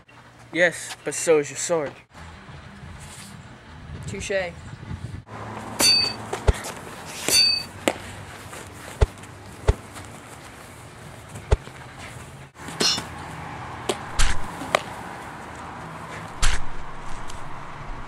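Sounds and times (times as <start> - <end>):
brief rings: 5.8 - 6.2, 7.3 - 7.7.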